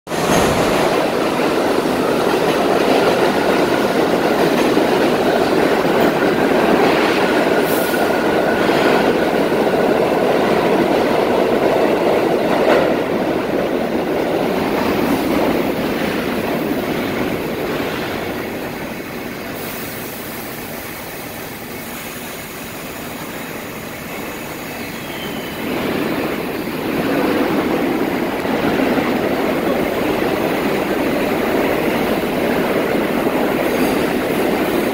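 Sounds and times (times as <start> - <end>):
subway train rumbling: 0.1 - 34.9.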